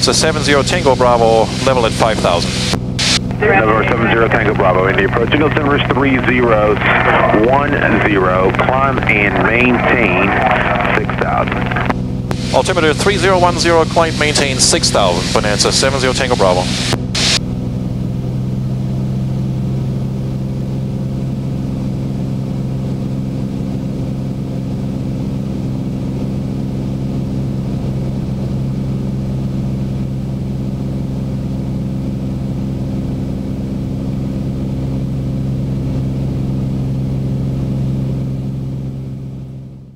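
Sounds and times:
propeller plane engine drone: 0.0s - 39.9s.

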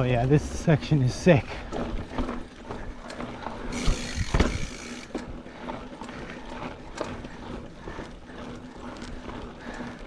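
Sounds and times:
bike freehub ratcheting: 0.3s - 10.0s
tyres rattling over rock: 1.1s - 5.2s.

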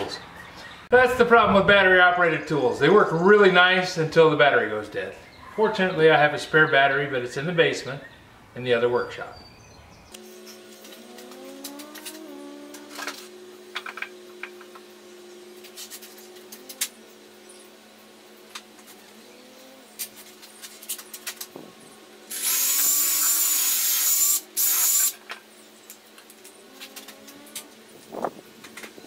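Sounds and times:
cordless drill whining: 22.3s - 25.1s.

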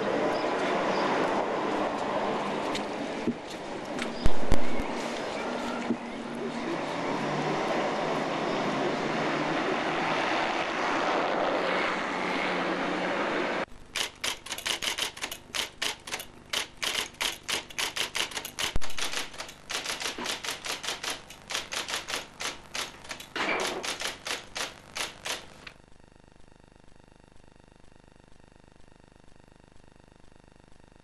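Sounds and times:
street traffic: 0.0s - 25.7s
electric typewriter keys clattering: 13.9s - 25.7s
typewriter rasping noise: 13.9s - 25.7s.

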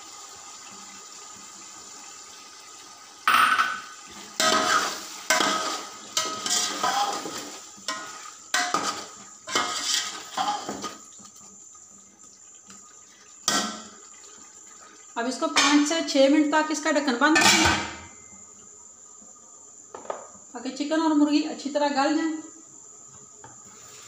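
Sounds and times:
metal spoon scraping a pot: 4.4s - 11.0s.

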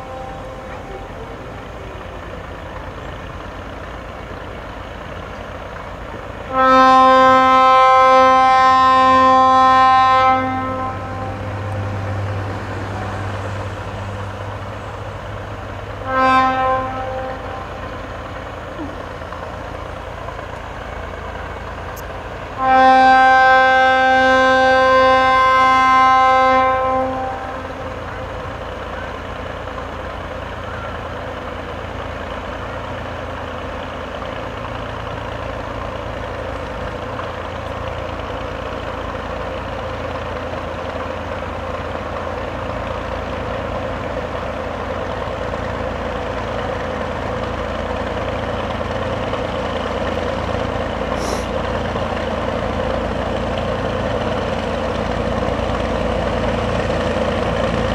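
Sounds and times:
locomotive horn: 0.0s - 2.1s, 6.4s - 18.6s, 21.9s - 29.2s
diesel locomotive engine running: 0.0s - 57.9s.

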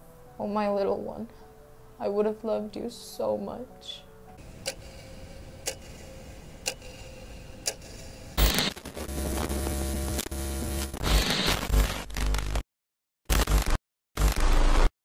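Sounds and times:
clock-like ticking: 4.4s - 8.8s
buzzing hum with crackle: 8.4s - 12.6s, 13.3s - 14.9s
electronic static burst: 8.4s - 12.6s, 13.3s - 14.9s.

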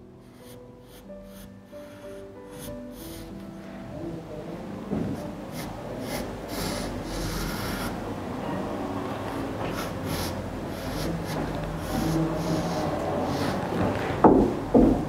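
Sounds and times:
pencil scratching on paper: 0.3s - 3.5s, 5.2s - 8.0s, 9.3s - 13.9s.

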